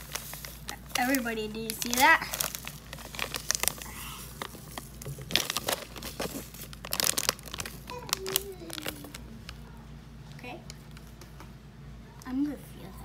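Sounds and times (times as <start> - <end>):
plastic packet crinkling: 0.0 - 9.8.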